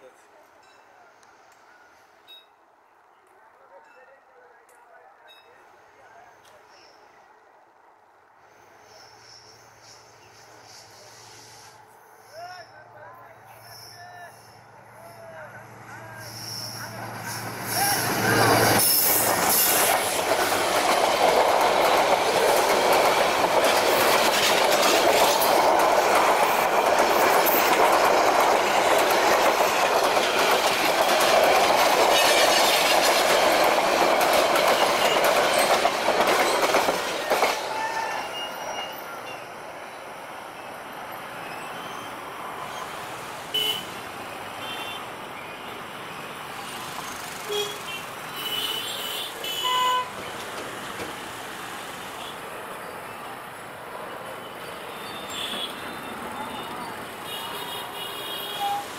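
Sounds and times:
diesel locomotive passing: 5.3 - 58.9
train wheels rumbling on rails: 15.7 - 39.4, 48.2 - 52.2.

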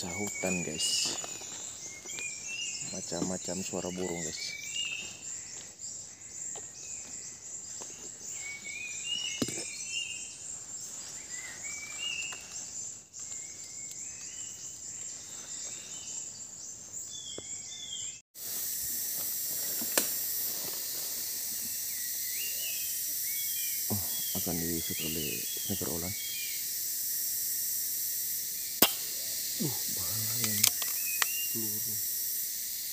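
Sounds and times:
steady hiss: 0.0 - 4.9, 18.4 - 32.9
birds chirping and whistling: 0.0 - 5.6, 29.6 - 32.0
high insect-like chatter: 0.0 - 32.9
sharp click: 28.8 - 29.0, 30.4 - 31.4.

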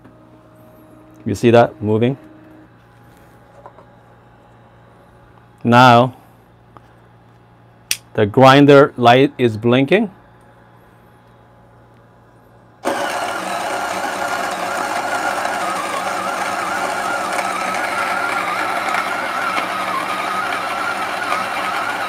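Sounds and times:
coffee grinder running: 12.8 - 22.0.

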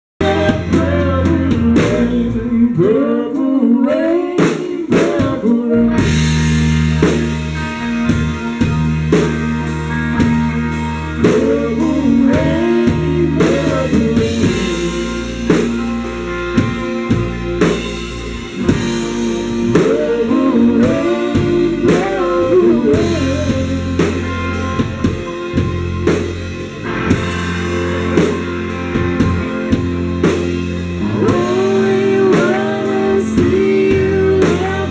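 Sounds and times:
person singing: 0.2 - 6.6, 11.0 - 25.8, 30.8 - 34.9
rock band playing: 0.2 - 34.9.

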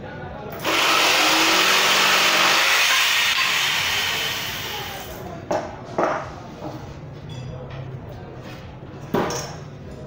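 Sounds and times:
electric jigsaw cutting wood: 0.6 - 5.1.

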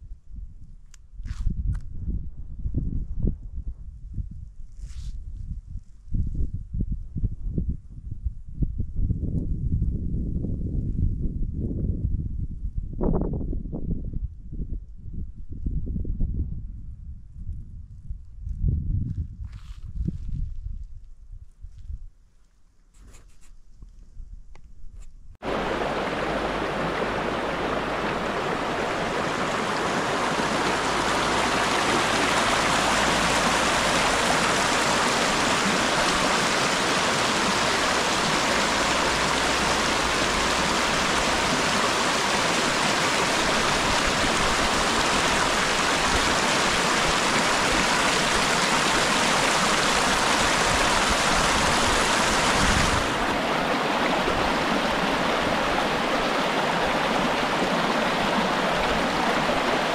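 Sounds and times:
water rushing over rocks: 25.4 - 59.9.

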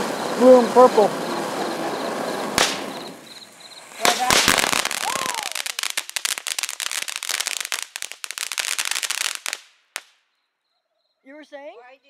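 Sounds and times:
firework fountain crackling: 0.0 - 10.2
firework pop: 2.5 - 3.4.

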